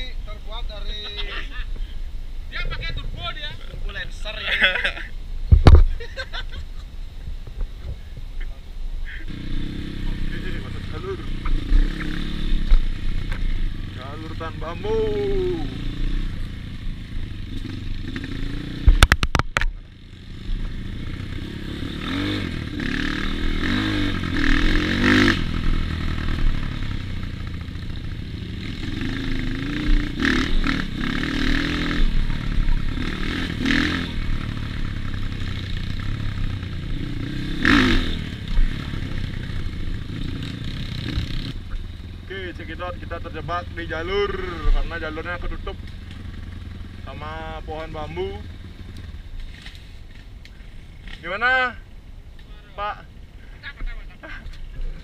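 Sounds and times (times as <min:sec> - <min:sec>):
motorcycle engine revving: 0:09.3 - 0:51.8.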